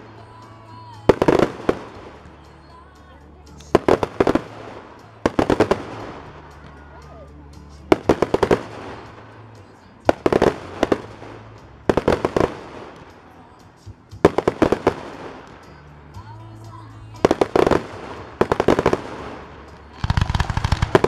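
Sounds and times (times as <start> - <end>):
fireworks bangs with rolling echo: 1.0 - 2.8, 3.6 - 6.8, 7.8 - 13.5, 14.1 - 15.8, 17.2 - 21.0.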